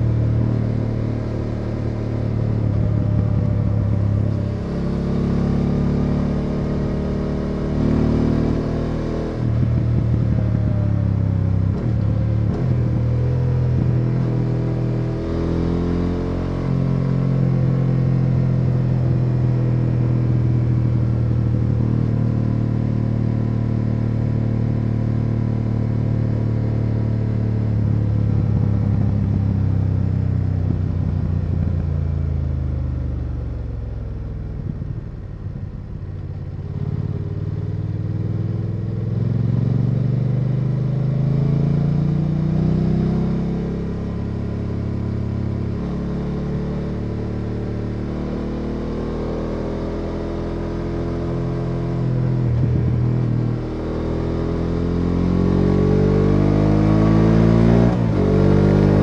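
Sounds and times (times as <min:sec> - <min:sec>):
motorcycle engine shifting gears: 0:47.8 - 0:59.0.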